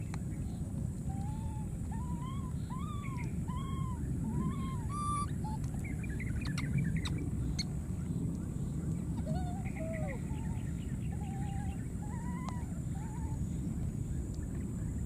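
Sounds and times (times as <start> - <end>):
infant monkey cooing: 1.2 - 5.8, 9.2 - 10.6
high chirps: 2.2 - 5.6.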